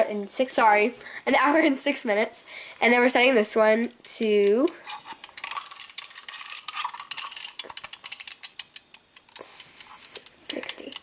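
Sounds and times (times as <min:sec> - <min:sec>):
timer buzzing rattle: 0:04.6 - 0:11.0.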